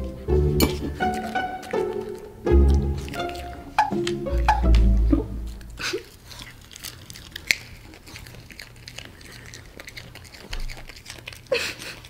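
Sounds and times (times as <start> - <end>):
plucked-string music: 0.0 - 5.8
dogs chewing crunchy vegetable: 0.0 - 12.0.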